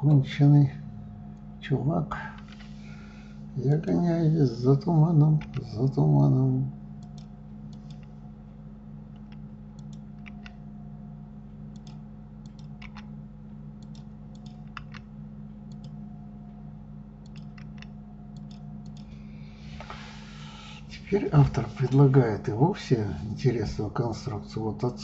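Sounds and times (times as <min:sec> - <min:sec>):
low electrical hum: 0:00.0 - 0:25.0
mouse and keyboard clicks: 0:09.2 - 0:10.6, 0:11.7 - 0:13.1, 0:13.8 - 0:15.1, 0:17.2 - 0:19.1.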